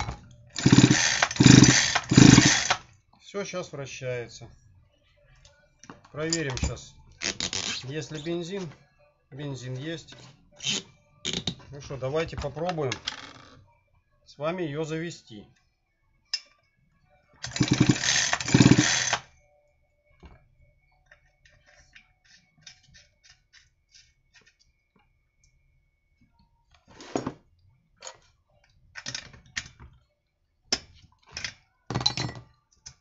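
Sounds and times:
chainsaw engine cranking: 0.6s - 2.8s, 17.4s - 19.3s
metal tools clinking: 31.4s - 32.5s.

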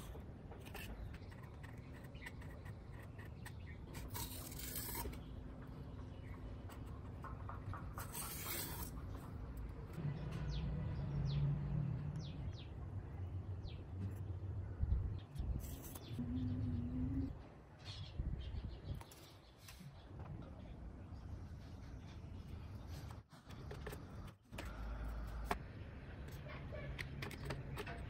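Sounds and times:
knife scraping on foam: 2.6s - 5.3s, 8.0s - 9.1s
marker strokes scratching: 8.0s - 9.2s
low hum: 9.1s - 18.4s.

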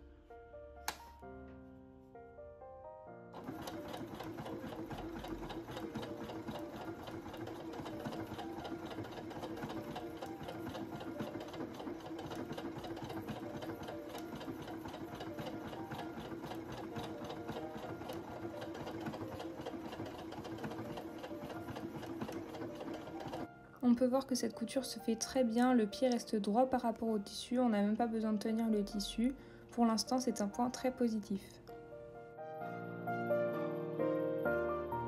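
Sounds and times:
sewing machine motor hum: 3.3s - 23.5s.

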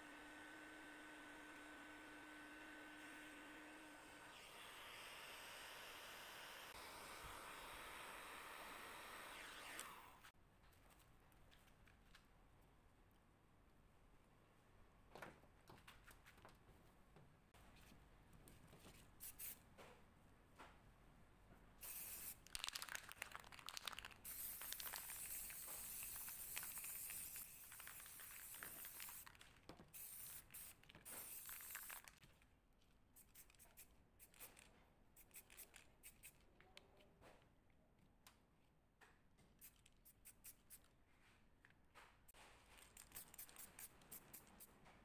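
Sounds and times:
spray paint can hissing: 19.2s - 19.6s, 21.8s - 22.8s, 24.2s - 32.2s, 39.6s - 40.8s, 43.0s - 44.6s.

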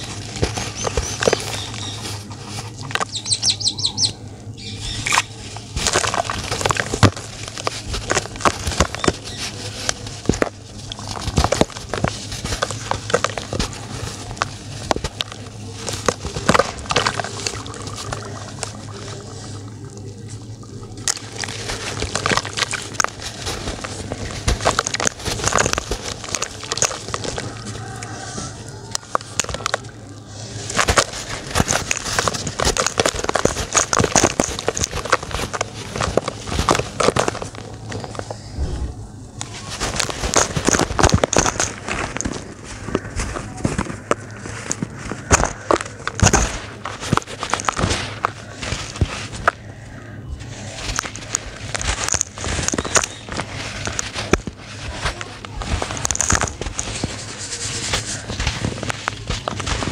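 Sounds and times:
dry dirt crunching in hands: 5.0s - 59.9s.

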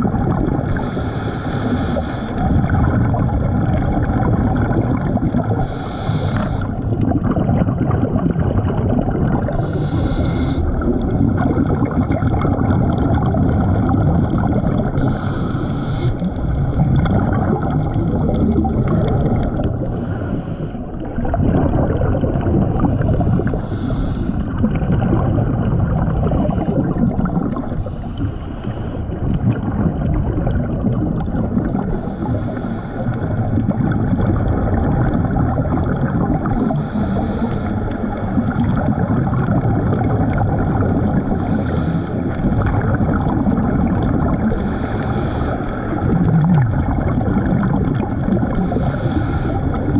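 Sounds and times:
gurgling exhaled bubbles: 0.0s - 49.9s
regulator hissing inhalation: 0.8s - 2.4s, 5.6s - 6.7s, 9.6s - 10.7s, 15.0s - 16.2s, 23.6s - 24.4s, 44.5s - 45.6s, 48.6s - 49.7s.

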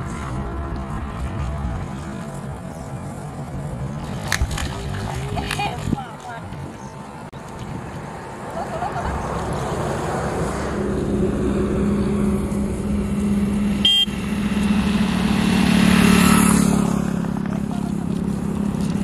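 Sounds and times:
highway traffic: 0.0s - 19.0s
vehicle passing close: 0.0s - 19.0s
sharp high beep: 13.8s - 14.2s.

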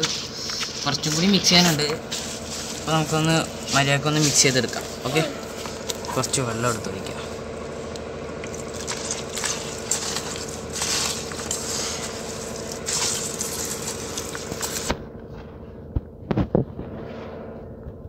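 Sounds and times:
hands squelching wet mortar: 0.0s - 15.0s.

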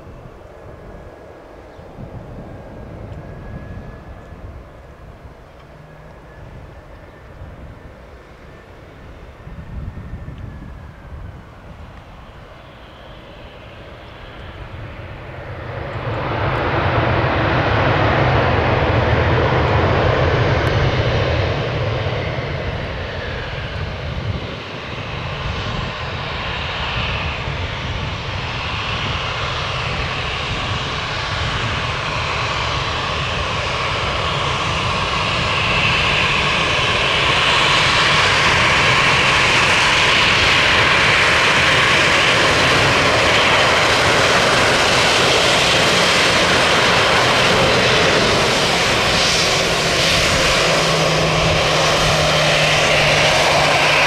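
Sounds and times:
jet engines whining: 0.0s - 54.0s.

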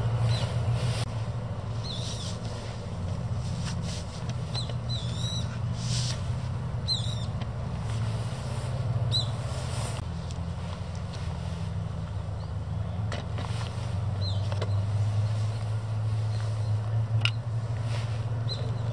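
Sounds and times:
steady low rumble: 0.0s - 18.9s
fabric rustling: 0.1s - 1.2s, 1.8s - 4.5s, 7.6s - 11.8s
high bird chirps: 1.8s - 2.4s, 4.4s - 5.6s, 6.8s - 7.4s, 9.1s - 9.5s.

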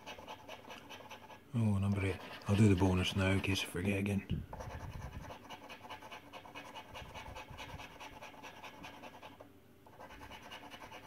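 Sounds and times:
coin scratching a scratchcard: 0.0s - 3.7s, 4.6s - 11.0s.

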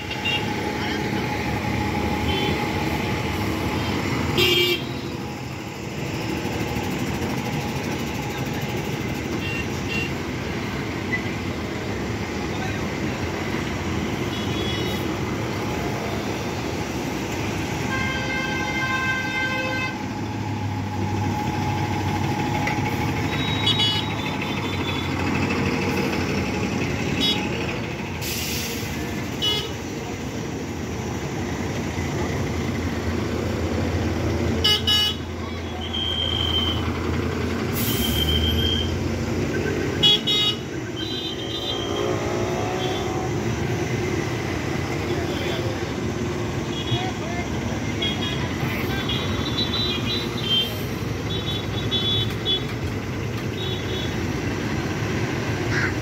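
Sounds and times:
bus engines running: 0.0s - 56.0s
horn honk: 4.4s - 5.0s.

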